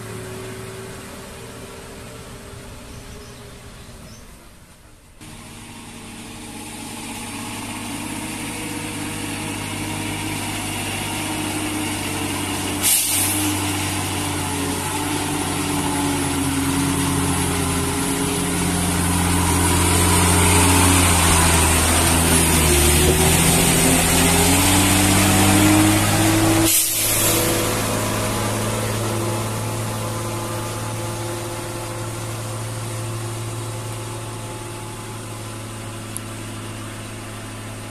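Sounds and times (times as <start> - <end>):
lorry diesel engine passing: 0.0 - 37.9
brief hisses: 12.8 - 13.5, 26.6 - 27.6.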